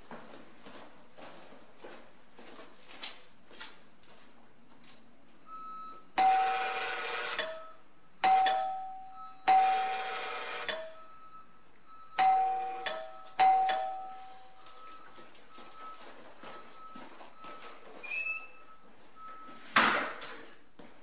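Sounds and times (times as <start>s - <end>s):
doorbell chime ding dong: 6.2s - 11.2s, 12.2s - 15.0s.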